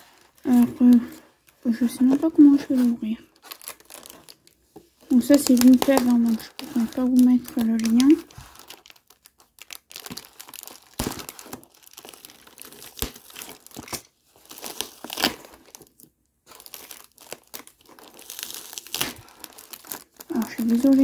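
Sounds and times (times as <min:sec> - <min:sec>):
tape crinkling and tearing: 0:00.0 - 0:21.0
packing tape being slit with knife: 0:10.0 - 0:15.8, 0:16.6 - 0:20.0.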